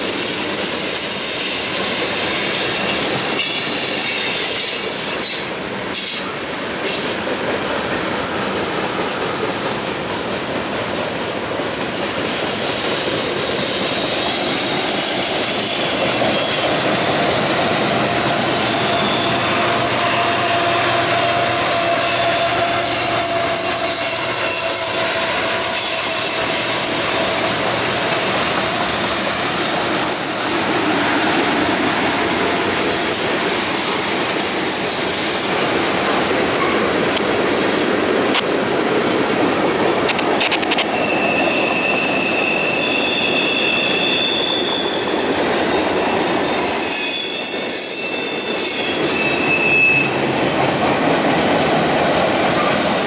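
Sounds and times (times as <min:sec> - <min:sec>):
diesel locomotive engine: 0:00.0 - 0:53.0
train wheels clattering on rails: 0:00.0 - 0:53.0
wheels squealing: 0:12.1 - 0:37.2, 0:40.1 - 0:50.3.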